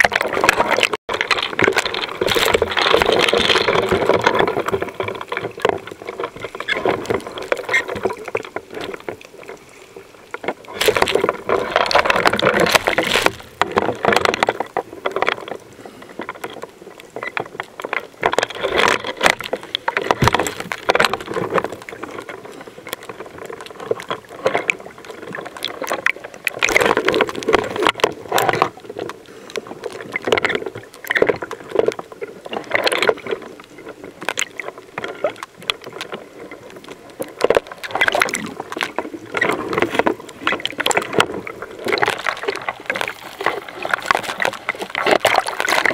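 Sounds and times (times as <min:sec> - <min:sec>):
water sloshing underwater: 0:00.0 - 0:45.9
sharp clicks and knocks: 0:10.3 - 0:15.6, 0:16.2 - 0:22.3.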